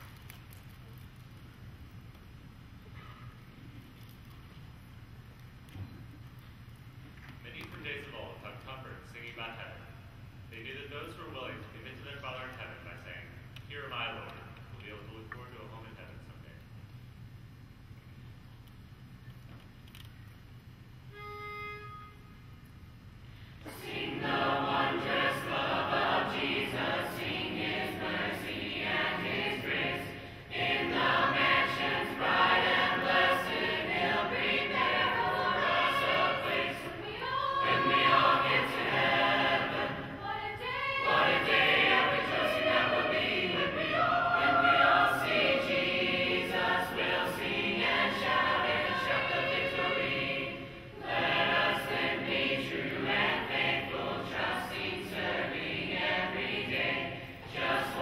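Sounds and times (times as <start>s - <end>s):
youth choir singing a hymn: 23.7s - 58.0s.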